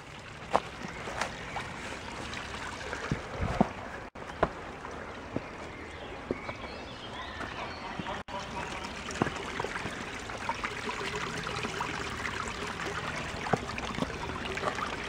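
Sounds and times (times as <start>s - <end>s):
forest stream running: 0.0s - 15.0s
footsteps on rock: 3.0s - 4.7s, 5.3s - 8.2s, 9.2s - 10.0s.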